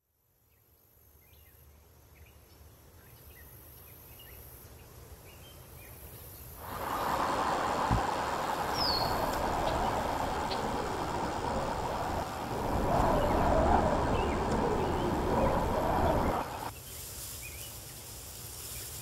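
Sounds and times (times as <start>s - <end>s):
low rumble: 6.6s - 16.7s
rushing road noise: 6.6s - 16.7s
high hiss: 6.6s - 19.0s.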